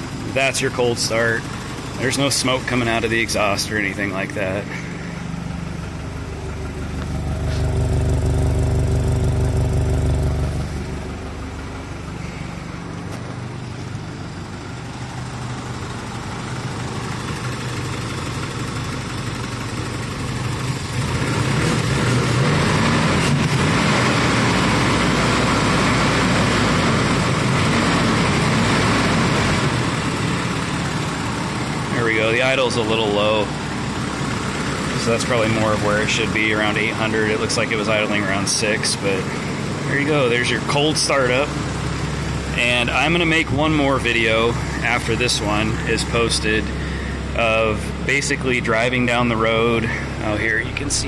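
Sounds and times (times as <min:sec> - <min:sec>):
engine idling: 0:00.0 - 0:51.0.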